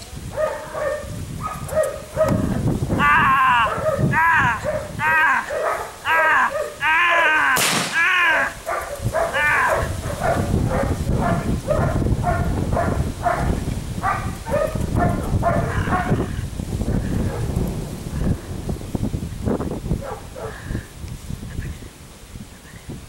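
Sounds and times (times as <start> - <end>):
puppy barking and yipping: 0.3 - 2.5, 3.7 - 7.4, 8.3 - 16.2
shotgun shot: 7.6 - 8.1.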